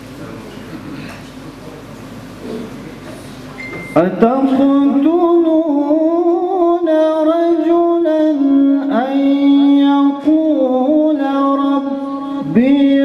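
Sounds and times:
man chanting recitation: 4.0s - 13.0s.

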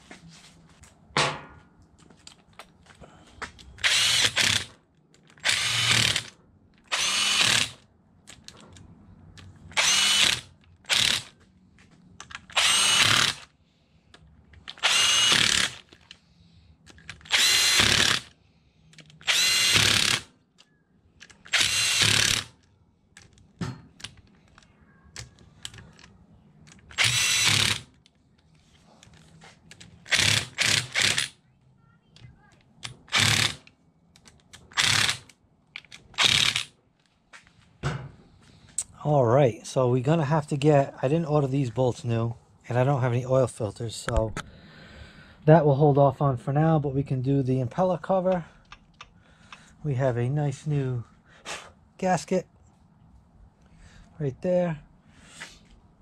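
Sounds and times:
impact driver short bursts: 3.8s - 4.7s, 5.4s - 6.3s, 6.9s - 7.8s, 12.5s - 13.4s, 14.7s - 15.9s, 17.2s - 18.3s, 19.2s - 20.3s, 21.5s - 22.5s, 26.9s - 27.9s, 30.1s - 31.4s, 33.1s - 33.6s, 34.7s - 35.3s, 36.2s - 36.7s.

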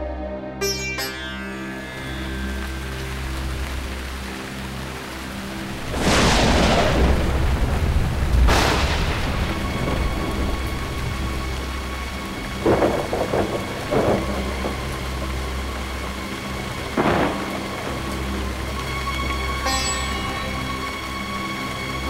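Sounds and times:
steady rain: 1.1s - 22.0s
thunder cracks and rolls: 5.8s - 11.8s, 12.4s - 14.9s, 16.9s - 18.2s.

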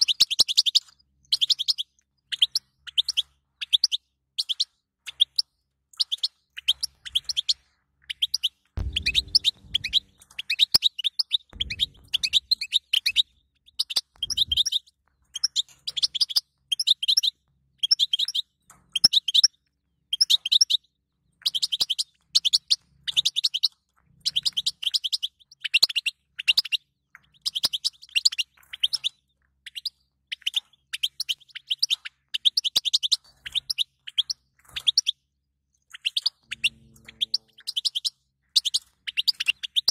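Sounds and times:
goldfinch twittering: 8.8s - 10.7s, 11.3s - 14.8s, 35.9s - 39.9s.

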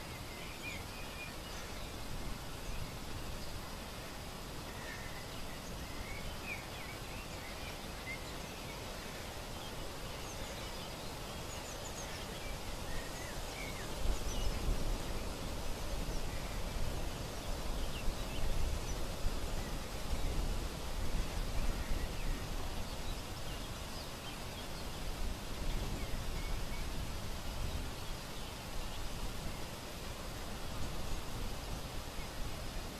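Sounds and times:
background hiss: 0.0s - 32.9s
small birds chirping: 0.0s - 32.9s
wind rumble on microphone: 9.8s - 32.9s.

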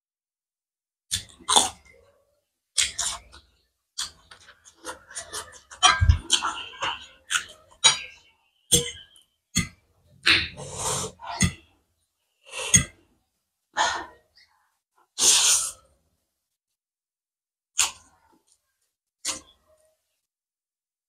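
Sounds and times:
wet slurping noodles: 10.3s - 11.6s, 15.2s - 15.8s.

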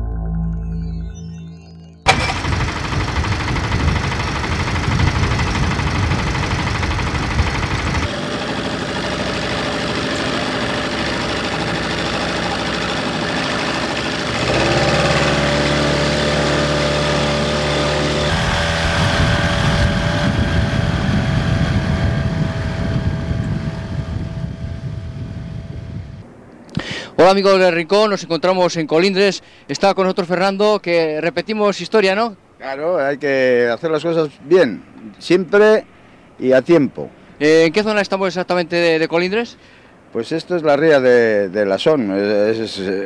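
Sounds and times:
outboard motor running: 2.1s - 25.9s.

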